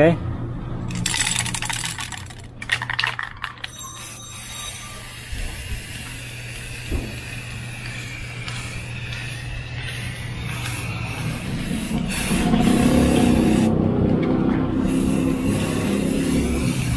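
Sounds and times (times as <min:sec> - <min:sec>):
spray can ball rattling: 0:00.9 - 0:13.7, 0:14.8 - 0:16.9
spray nozzle hissing: 0:04.1 - 0:13.7, 0:14.8 - 0:16.9.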